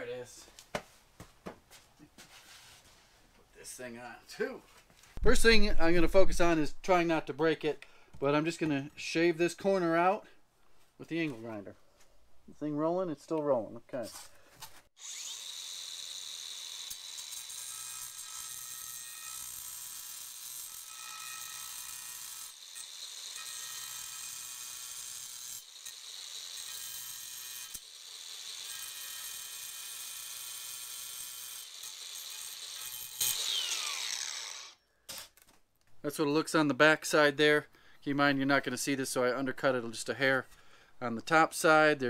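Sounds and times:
angle grinder cutting stone: 15.0s - 34.8s.

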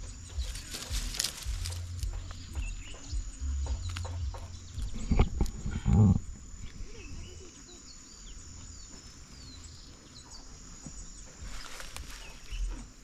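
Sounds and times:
birds chirping: 0.0s - 13.0s
rustle of dry grass and leaves: 0.2s - 2.4s, 6.5s - 13.0s.

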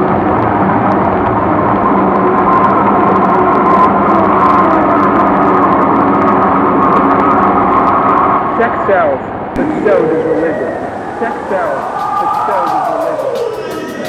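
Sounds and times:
electronic drone: 0.0s - 14.0s.

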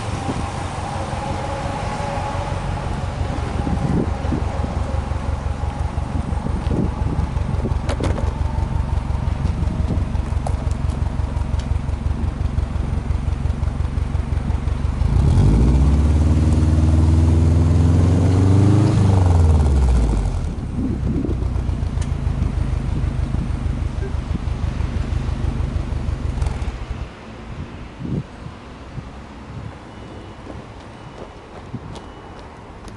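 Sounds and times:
car engine idling and revving: 0.0s - 32.9s.

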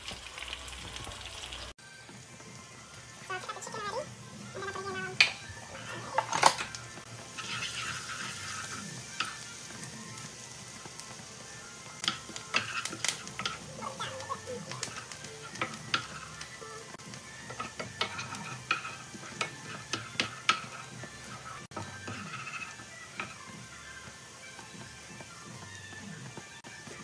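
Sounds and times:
shallots sizzling in butter: 0.0s - 27.0s
wooden spoon scraping a pan: 4.5s - 11.2s, 12.0s - 26.4s.

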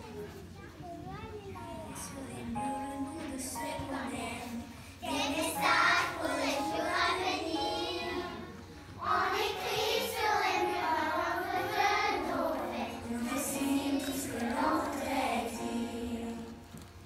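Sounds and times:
children singing: 3.5s - 16.6s.

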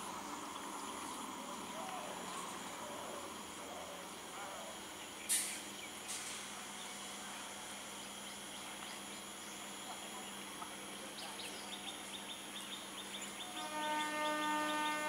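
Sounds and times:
train horn: 13.3s - 15.0s.

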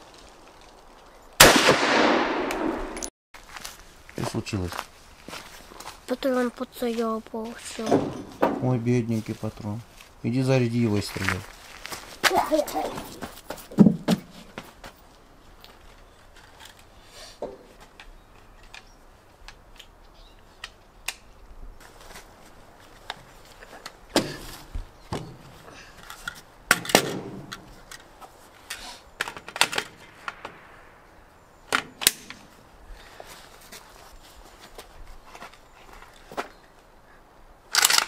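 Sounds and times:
rifle metal clicks and clacks: 37.7s - 38.0s.

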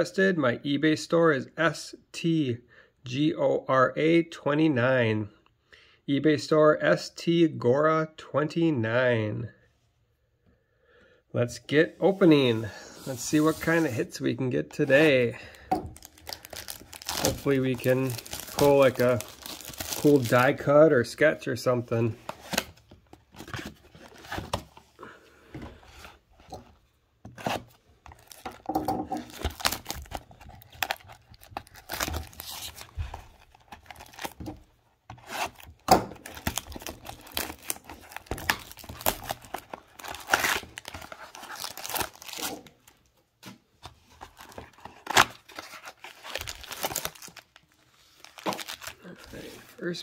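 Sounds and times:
plastic shrink-wrap crinkling: 15.9s - 20.7s, 28.0s - 34.7s, 35.3s - 43.0s, 44.2s - 49.6s
cardboard boxes tearing: 16.0s - 20.4s, 29.3s - 34.4s, 35.1s - 42.5s.

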